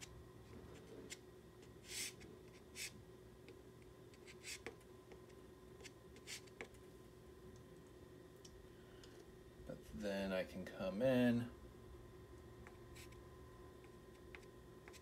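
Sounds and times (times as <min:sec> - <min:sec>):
pastel stick scratching paper: 0:01.8 - 0:03.0, 0:04.1 - 0:04.8.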